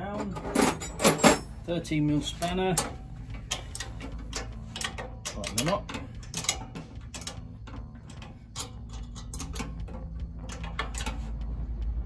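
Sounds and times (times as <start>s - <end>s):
spanner clicking on metal: 2.4s - 11.5s.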